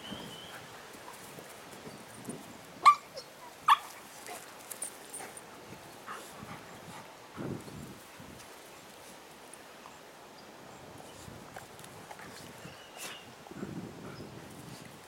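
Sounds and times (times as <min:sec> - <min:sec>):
dogs play-fighting: 0:03.2 - 0:08.1, 0:11.1 - 0:15.0.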